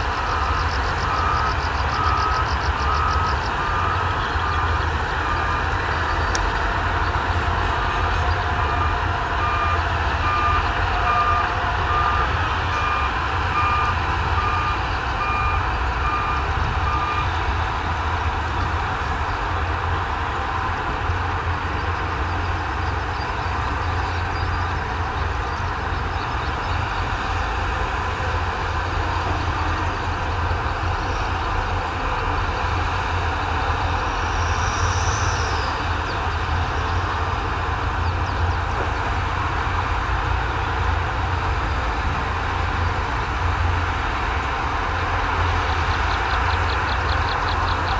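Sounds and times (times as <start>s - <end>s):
reversing alarm beeping: 0.0s - 17.3s
heavy machine engine rumble: 0.0s - 47.9s.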